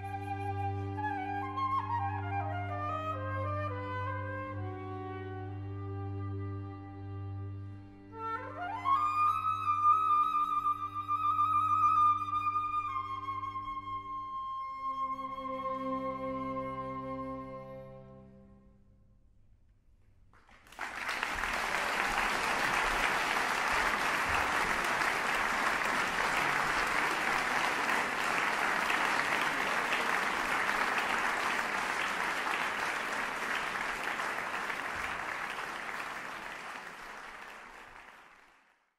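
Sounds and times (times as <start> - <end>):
audience applauding: 20.4 - 38.9.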